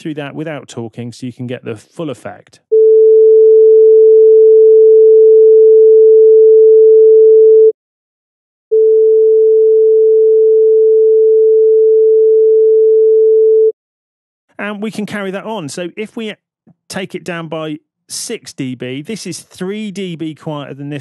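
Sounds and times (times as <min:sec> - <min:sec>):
sine wave test tone: 0:08.7 - 0:13.7.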